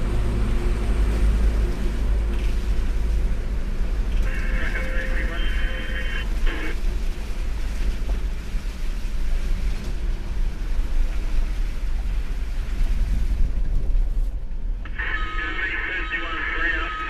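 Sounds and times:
engine and road rumble: 0.0 - 17.0
wind noise on microphone: 6.5 - 14.9.

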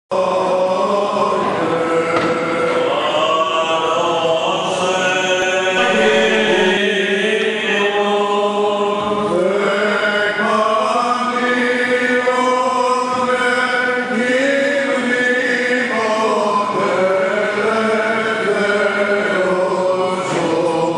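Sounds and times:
male voices chanting: 0.1 - 20.9
held low drone note: 5.8 - 7.6.

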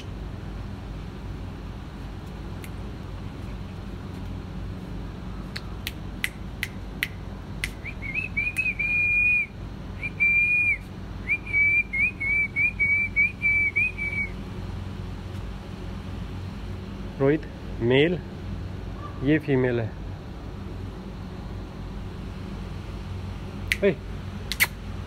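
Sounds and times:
steady low hum: 0.0 - 25.0
sharp clicks: 5.5 - 7.9, 24.5 - 24.8
person whistling high pitch: 7.8 - 14.3.

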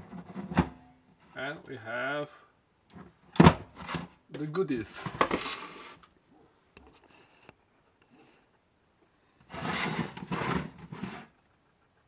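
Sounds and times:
plastic case scraping on wood: 9.5 - 11.4.

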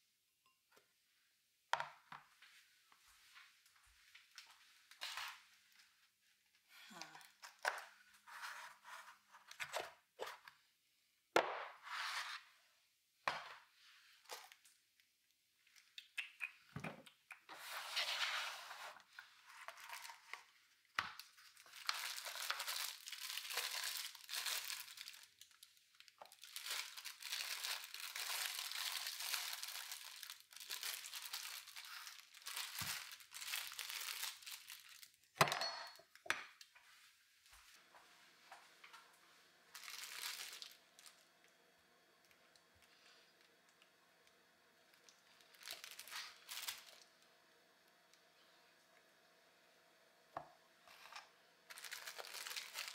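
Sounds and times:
paper and foil crinkling: 19.0 - 35.3, 39.7 - 41.3, 45.0 - 47.1, 50.9 - 52.9.

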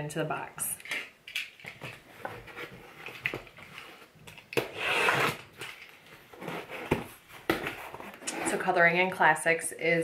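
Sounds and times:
handling knocks and rustles: 0.8 - 4.7, 5.4 - 8.7.

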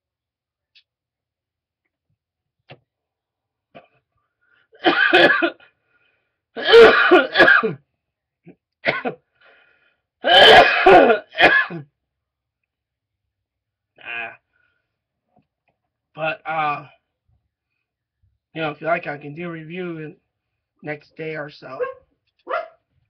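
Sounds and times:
man clearing throat: 4.8 - 5.7, 6.6 - 7.8, 8.8 - 9.2, 10.2 - 11.9
man coughing: 4.8 - 5.7, 6.6 - 7.8, 8.8 - 9.2, 10.2 - 11.9.

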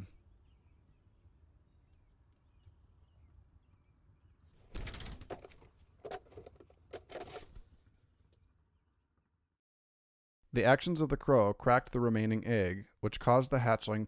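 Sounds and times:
wings flapping against grass nest: 4.6 - 7.8.

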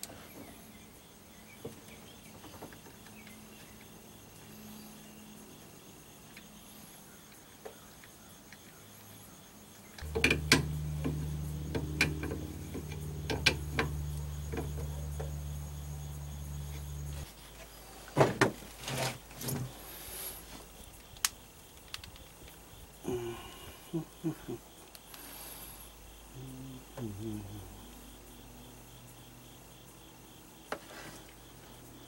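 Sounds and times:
low machine hum: 10.0 - 17.4, 25.4 - 29.8.

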